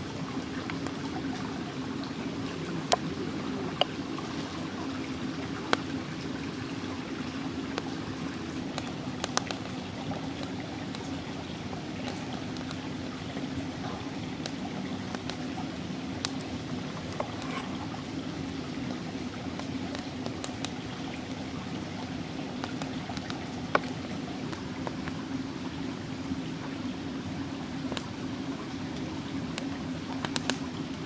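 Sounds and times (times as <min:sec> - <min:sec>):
stream running: 0:00.0 - 0:31.0
sharp clicks and crackles: 0:08.7 - 0:11.2, 0:12.0 - 0:12.9, 0:18.8 - 0:25.2, 0:29.6 - 0:30.7.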